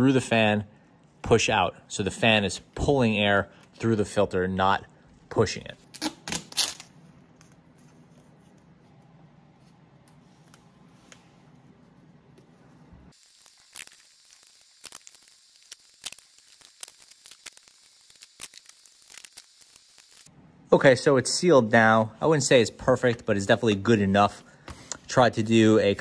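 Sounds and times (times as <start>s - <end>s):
duct tape ripping: 5.9s - 6.9s, 13.2s - 20.3s.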